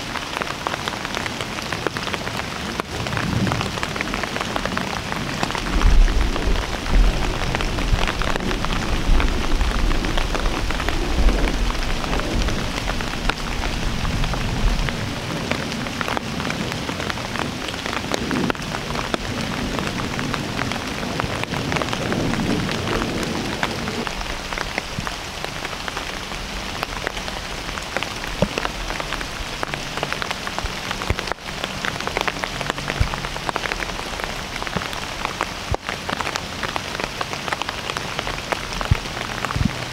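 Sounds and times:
rain pattering on leaves: 0.0s - 39.9s
low rumble: 5.5s - 15.2s.

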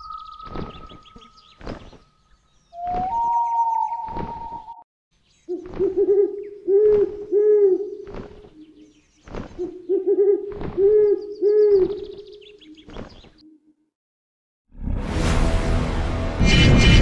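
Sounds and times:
owl hooting: 2.7s - 4.8s, 5.5s - 8.8s, 9.6s - 13.7s.

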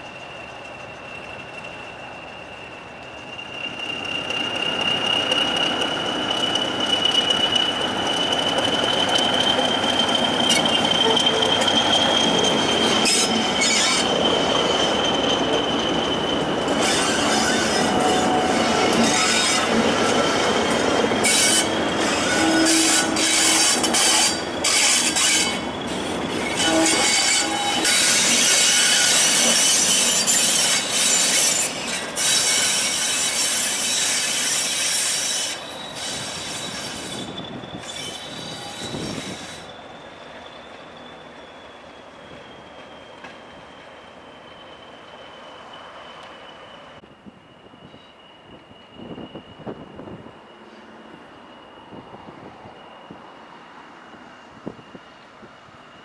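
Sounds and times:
high whistle: 0.0s - 55.2s
diesel locomotive engines: 0.0s - 56.0s
wheels clacking over rail joints: 3.8s - 37.2s.

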